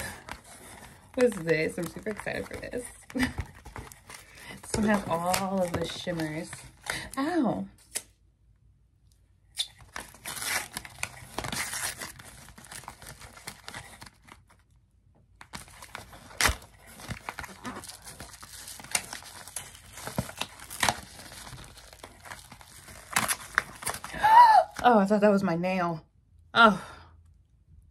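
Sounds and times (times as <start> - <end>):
paperboard box torn open: 9.6 - 14.5, 15.4 - 24.8.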